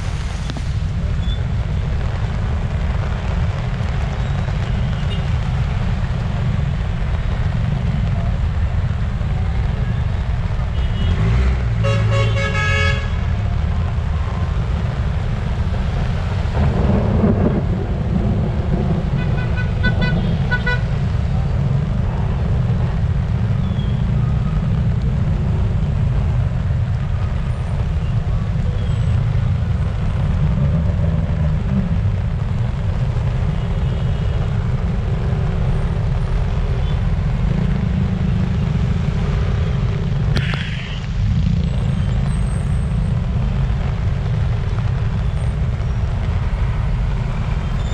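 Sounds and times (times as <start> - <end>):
heavy rain pouring: 0.0 - 47.9
traffic rumble: 0.0 - 47.9
vehicle horns tooting: 19.2 - 20.9.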